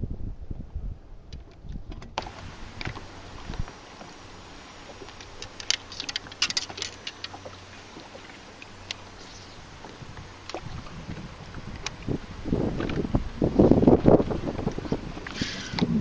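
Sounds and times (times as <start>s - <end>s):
low background rumble: 8.7s - 16.0s.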